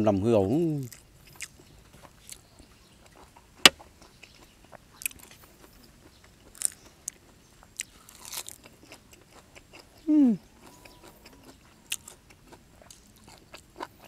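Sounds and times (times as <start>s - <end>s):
chewing food: 0.8s - 14.0s
crisp bites and crunches: 8.1s - 8.8s.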